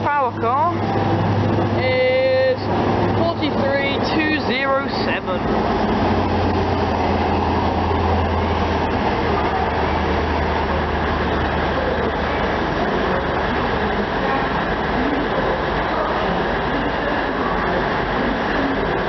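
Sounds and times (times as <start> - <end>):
diesel train engine drone: 0.0 - 19.0.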